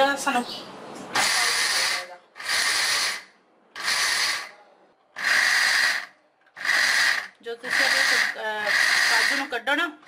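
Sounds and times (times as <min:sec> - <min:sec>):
mixer grinder grinding nuts: 0:01.2 - 0:04.5, 0:05.2 - 0:09.6.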